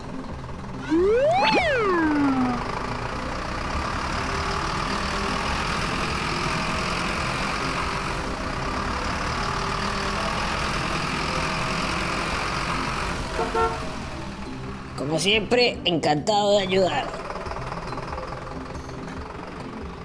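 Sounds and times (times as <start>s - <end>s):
engine running: 0.0s - 15.5s, 16.5s - 20.0s.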